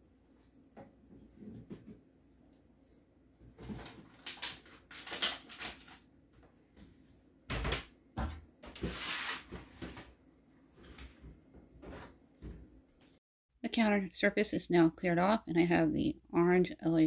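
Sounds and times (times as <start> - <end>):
items set on shelf: 7.6 - 10.2.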